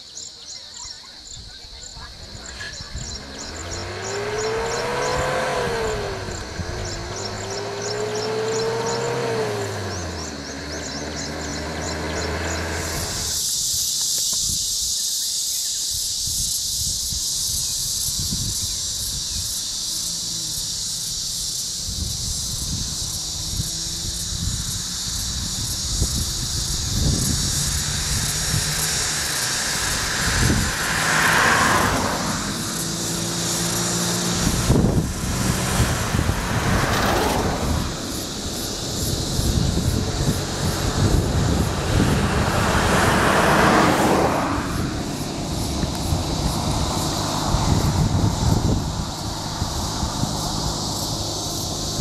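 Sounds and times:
vehicle engines humming: 0:00.0 - 0:14.6, 0:17.4 - 0:52.0
high-pitched hiss: 0:11.2 - 0:42.6, 0:44.6 - 0:52.0.

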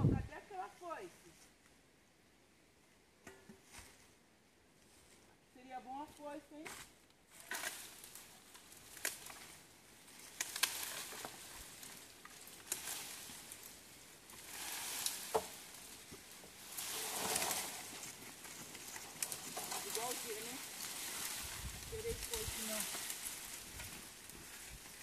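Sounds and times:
dry leaves rustling and crackling: 0:05.9 - 0:25.0.

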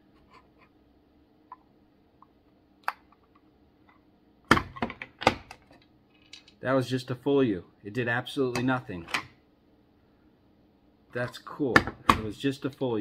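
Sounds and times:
sharp wooden knocks: 0:11.8 - 0:12.3.

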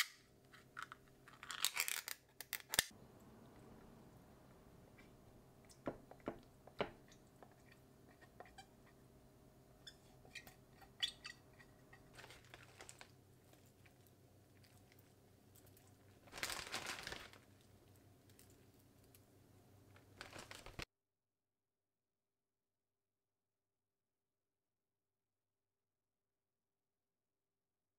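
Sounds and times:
faint steady hum: 0:02.9 - 0:20.8
plastic bag rustling: 0:12.1 - 0:13.9, 0:16.0 - 0:17.9, 0:19.9 - 0:20.9.

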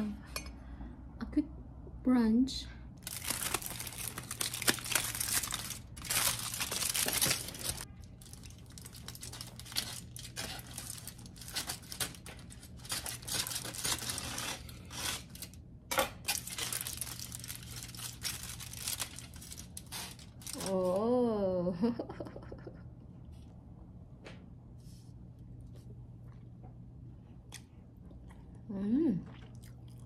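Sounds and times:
aluminium foil crinkling: 0:03.0 - 0:21.1.

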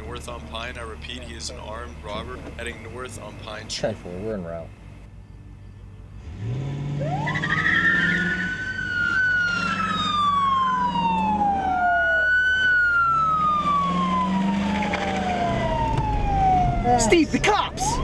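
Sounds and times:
police siren wailing: 0:07.0 - 0:18.0.

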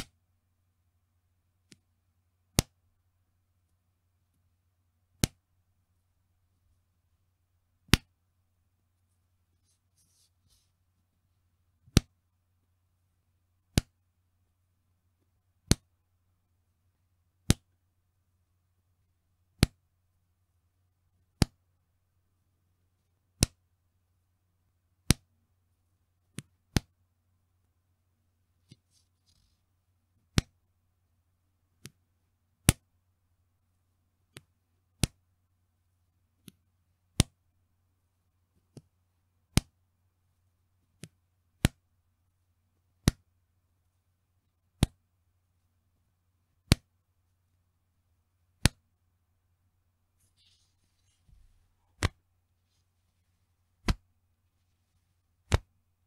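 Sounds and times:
elastic band snapping: 0:52.0 - 0:52.2, 0:53.8 - 0:54.0, 0:55.5 - 0:55.7.

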